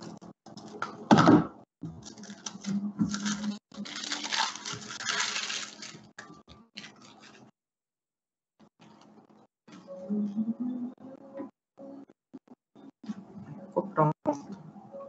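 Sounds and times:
paper rustling and crinkling: 0:02.0 - 0:07.5.

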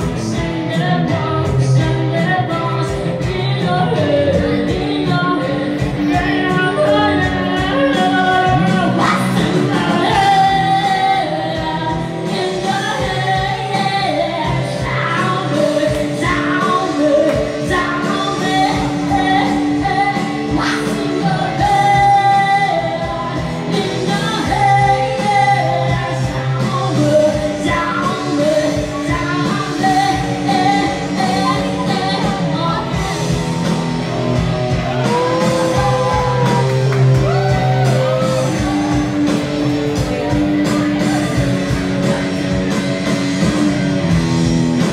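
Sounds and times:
woman singing into microphone: 0:00.0 - 0:33.6
electric guitar: 0:00.0 - 0:44.9.

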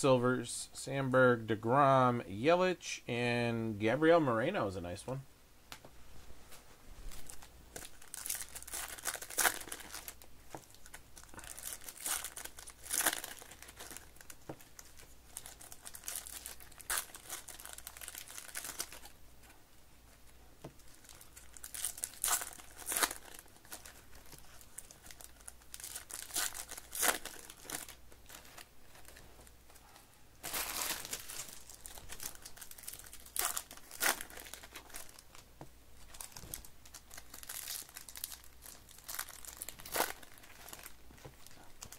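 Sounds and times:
foil wrappers crinkling and tearing: 0:07.1 - 0:19.1, 0:20.8 - 0:29.2, 0:30.4 - 0:35.4, 0:36.0 - 0:41.9.

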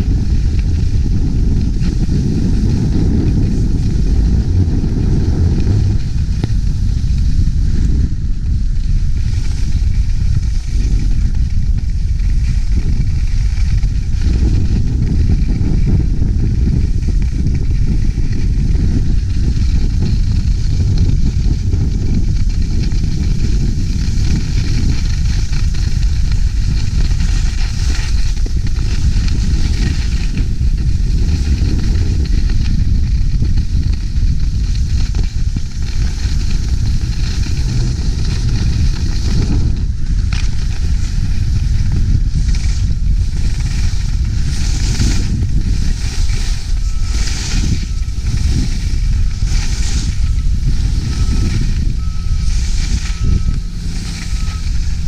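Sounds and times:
skis sliding over snow: 0:00.0 - 0:55.0
wind buffeting microphone: 0:00.0 - 0:55.0.

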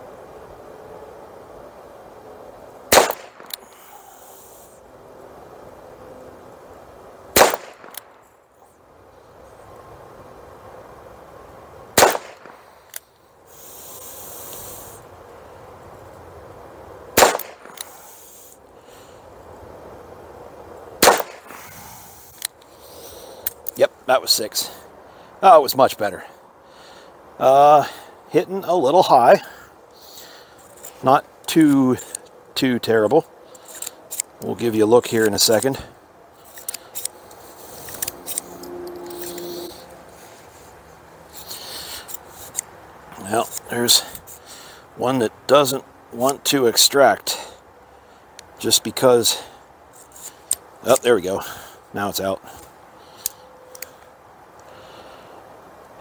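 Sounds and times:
revolver shots cracking: 0:02.9 - 0:03.6, 0:07.4 - 0:08.1, 0:12.0 - 0:12.6, 0:17.2 - 0:17.8, 0:21.0 - 0:21.6
revolver metallic clicks: 0:02.9 - 0:03.7, 0:07.4 - 0:08.2, 0:17.2 - 0:18.0, 0:36.4 - 0:39.9.

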